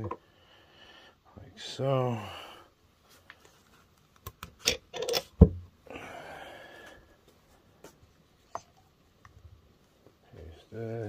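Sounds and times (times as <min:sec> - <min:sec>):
metal parts clicking and knocking: 0:04.6 - 0:05.4.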